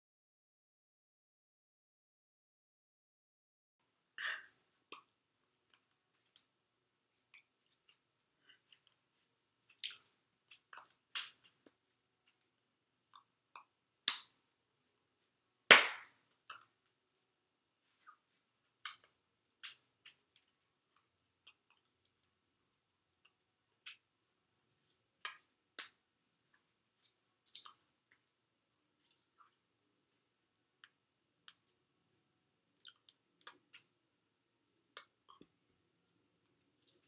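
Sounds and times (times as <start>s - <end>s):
hands slapping and clicking: 14.0s - 14.4s, 15.7s - 16.6s.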